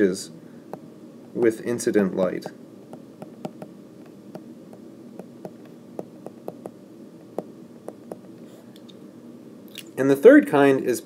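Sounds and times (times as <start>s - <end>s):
faint background hum: 0.0s - 11.0s
stylus tapping on tablet screen: 2.9s - 6.8s, 7.4s - 8.3s.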